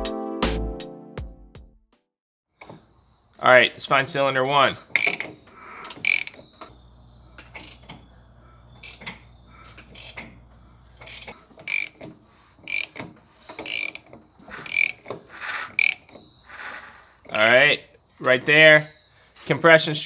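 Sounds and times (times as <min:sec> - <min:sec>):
hand ratchet clicking: 0:04.9 - 0:06.5, 0:07.4 - 0:08.0, 0:08.8 - 0:10.4, 0:11.0 - 0:16.3, 0:17.2 - 0:17.6.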